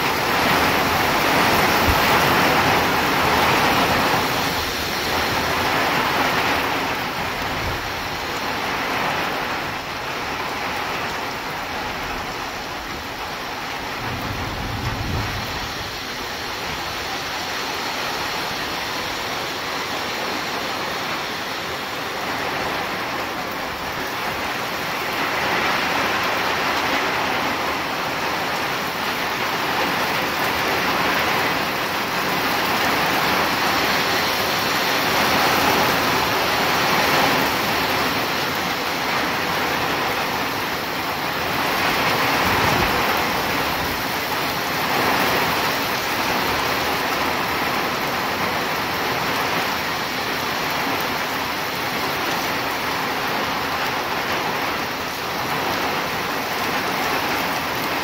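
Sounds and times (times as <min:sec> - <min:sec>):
gusts of wind: 0:00.0 - 0:58.0
heavy rain pouring: 0:00.0 - 0:58.0
low thunder rumble: 0:00.1 - 0:18.3.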